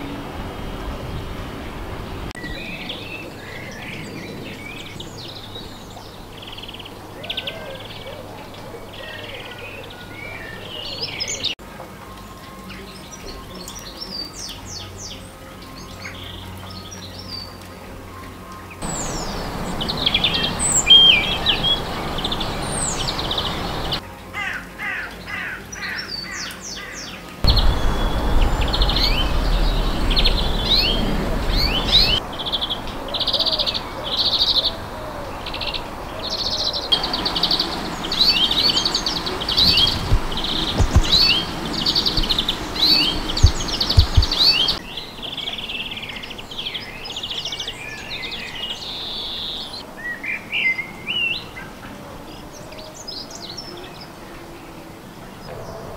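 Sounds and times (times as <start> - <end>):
finches twittering and chirping: 18.8 - 24.0, 27.5 - 44.8
low rumble: 27.4 - 33.9, 39.0 - 44.8.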